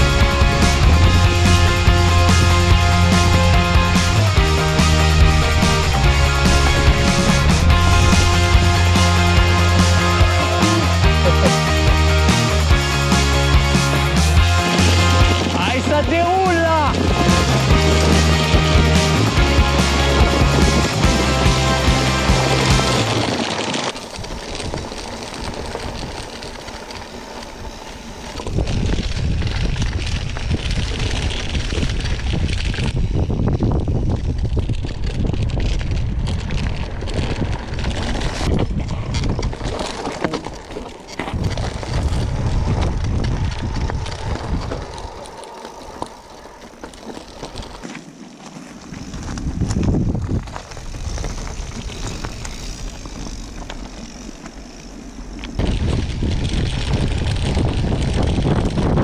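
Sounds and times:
wind buffeting microphone: 0.0 - 11.1, 13.6 - 47.9, 48.8 - 59.0
bike rattling: 0.0 - 59.0
bike tyres crunching on gravel: 0.0 - 59.0.

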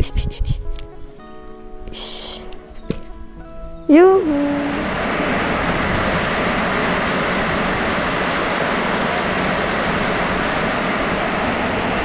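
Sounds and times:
heavy rain pouring: 4.2 - 12.0.

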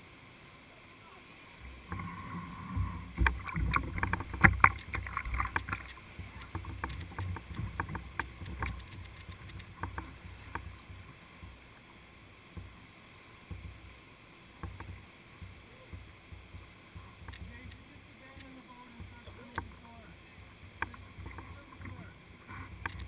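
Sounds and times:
rushing river water: 0.0 - 23.0
paddle splashes against boat: 1.1 - 23.0.

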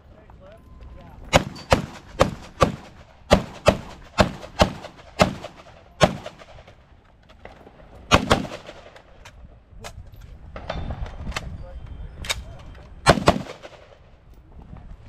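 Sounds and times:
rifle shots: 1.3 - 6.8, 8.1 - 9.2, 13.0 - 14.1.

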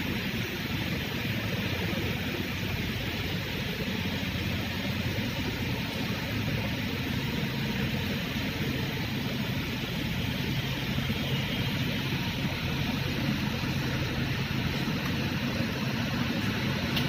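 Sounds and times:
forklift engine running: 0.0 - 17.0.

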